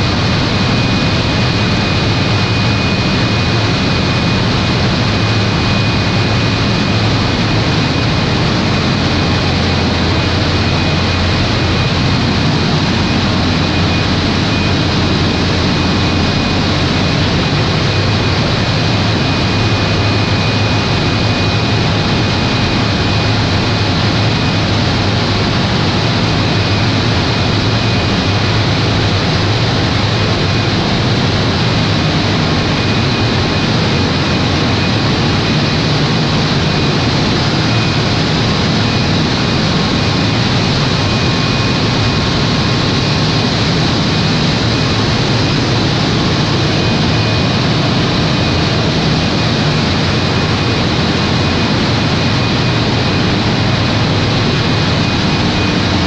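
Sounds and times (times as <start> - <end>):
diesel generator running: 0.0 - 56.0
low hum: 0.0 - 56.0.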